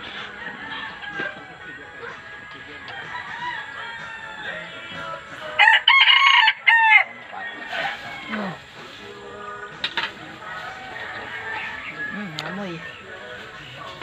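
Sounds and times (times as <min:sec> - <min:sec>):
rooster crowing: 0:00.1 - 0:01.6, 0:03.0 - 0:04.9, 0:05.6 - 0:08.7, 0:10.4 - 0:12.5.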